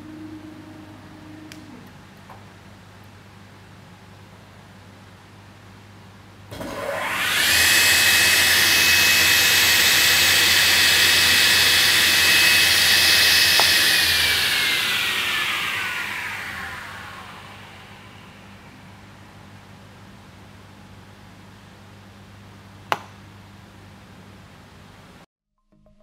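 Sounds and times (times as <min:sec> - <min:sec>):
table saw whining: 0:06.5 - 0:19.0.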